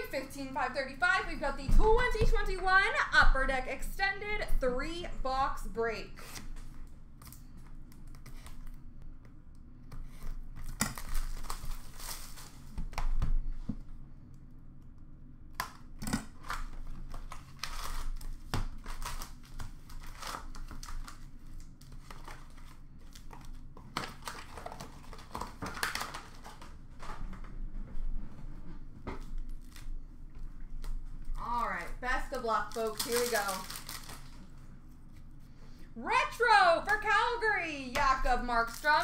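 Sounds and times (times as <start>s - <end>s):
plastic shrink-wrap tearing: 10.6s - 12.8s, 16.4s - 26.8s, 31.8s - 34.5s.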